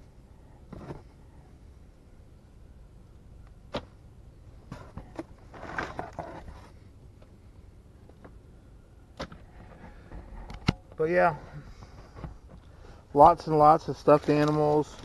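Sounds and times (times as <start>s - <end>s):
clicks and knocks in cardboard box: 4.7s - 6.7s
rustling in box: 4.7s - 6.8s.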